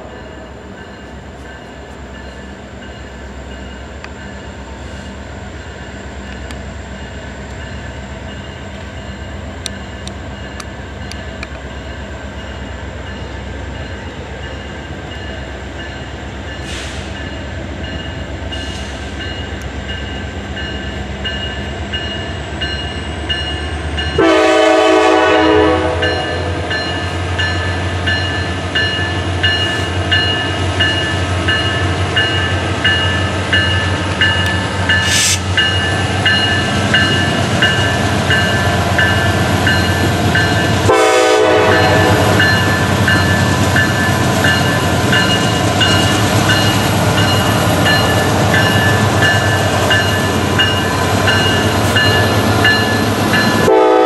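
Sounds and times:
diesel locomotive engine rumbling: 0.0s - 54.0s
locomotive air horn blast: 24.2s - 26.7s, 35.0s - 35.5s, 40.8s - 42.5s, 53.6s - 54.0s.

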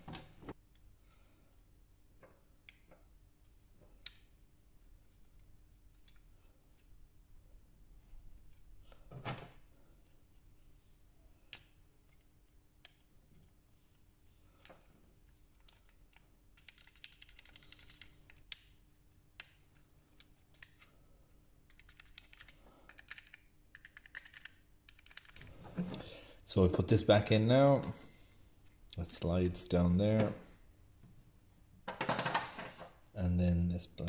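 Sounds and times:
plastic parts clicking and tapping: 21.6s - 25.5s.

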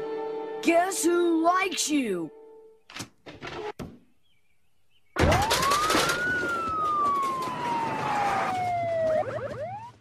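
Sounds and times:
cartoon ambulance siren wail: 5.2s - 10.0s.

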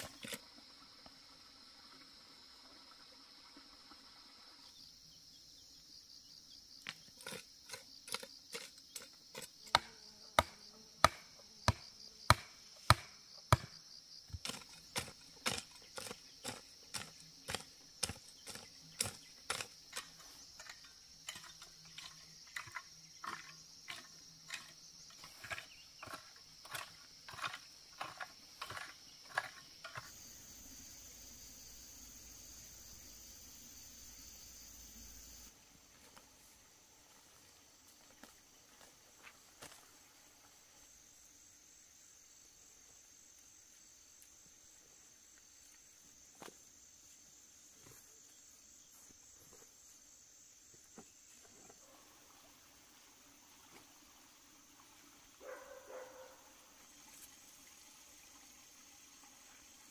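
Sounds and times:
hand tool striking ground: 0.0s - 0.4s, 6.8s - 30.2s
high insect drone: 0.0s - 59.9s.

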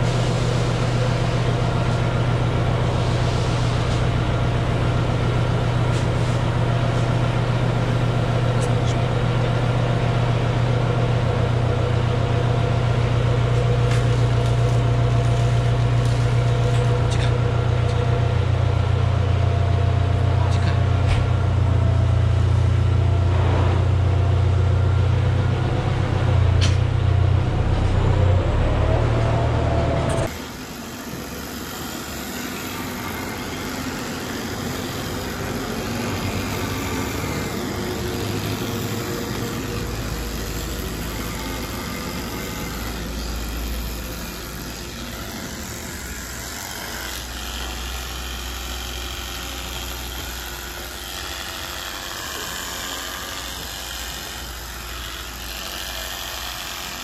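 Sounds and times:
tractor engine idling: 0.0s - 30.4s.

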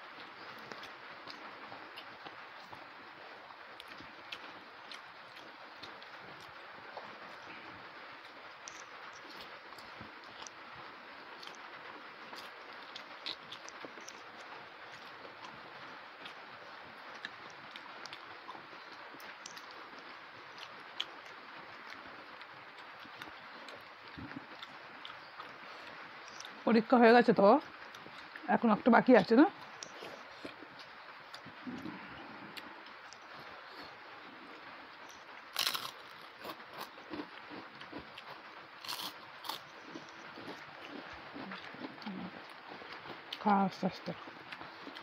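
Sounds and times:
chewing: 0.1s - 26.6s, 27.6s - 28.5s, 29.2s - 45.0s
sharp crunches: 35.5s - 38.0s.

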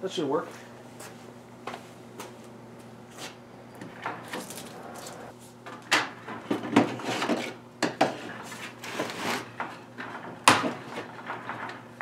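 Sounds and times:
wire scraping on wood: 7.0s - 10.2s.

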